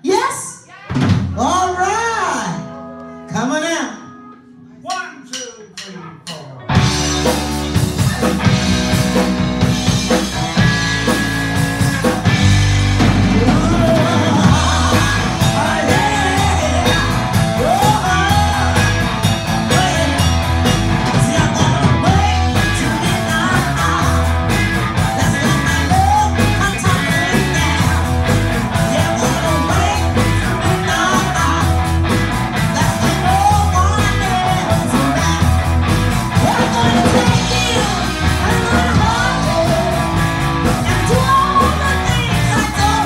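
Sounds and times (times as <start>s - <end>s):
drum kit: 0.0s - 1.9s, 4.9s - 43.0s
bass guitar: 6.6s - 43.0s
electric guitar: 6.7s - 43.0s
woman singing into a microphone: 36.4s - 40.0s, 40.8s - 43.0s.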